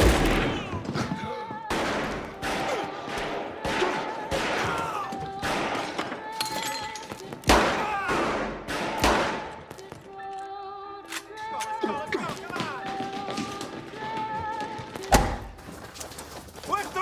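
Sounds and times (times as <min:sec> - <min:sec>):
echoing gunshots: 0:01.7 - 0:06.0, 0:07.5 - 0:09.6.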